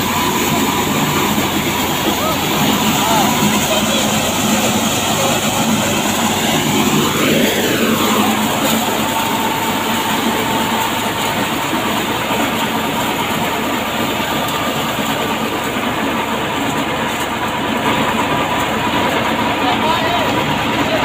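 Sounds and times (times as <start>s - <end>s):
faint steady whine: 0.0s - 14.6s
thresher mechanical din: 0.0s - 21.0s.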